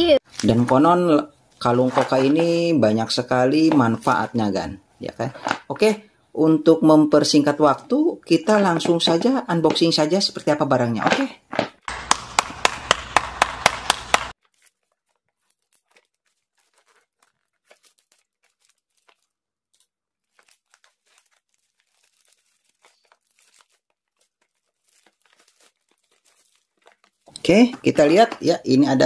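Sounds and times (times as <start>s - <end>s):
hand claps: 11.9s - 14.3s
plastic bag crinkling: 13.9s - 28.9s.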